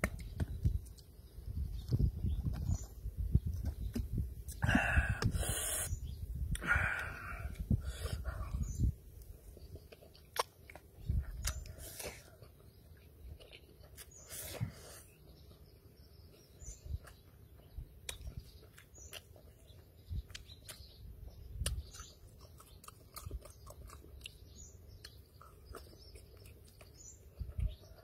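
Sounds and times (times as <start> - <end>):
person chewing and slurping noodles: 21.6 - 27.8.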